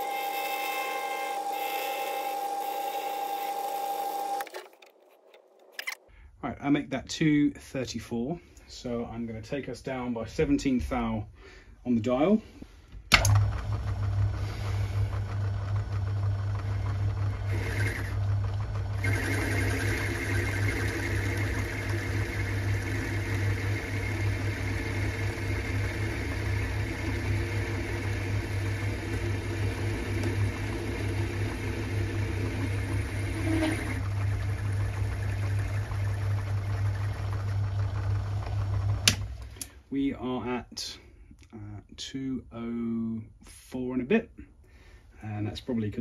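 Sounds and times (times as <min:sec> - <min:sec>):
lathe humming: 0:00.0 - 0:05.6, 0:13.2 - 0:39.7
turning tool cutting metal: 0:00.0 - 0:06.0, 0:14.6 - 0:36.6.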